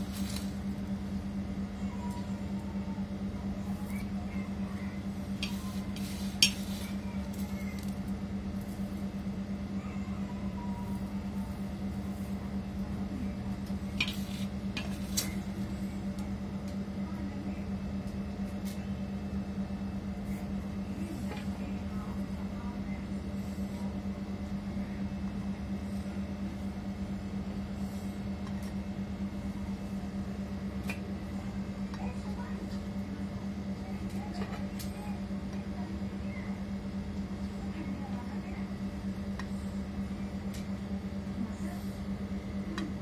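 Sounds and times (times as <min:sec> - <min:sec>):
steady low hum: 0:00.0 - 0:43.0.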